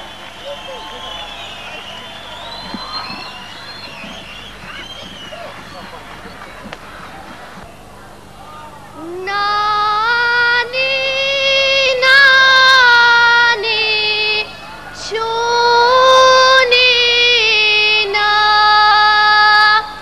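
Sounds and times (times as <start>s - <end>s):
young woman singing folk song: 9.0s - 20.0s.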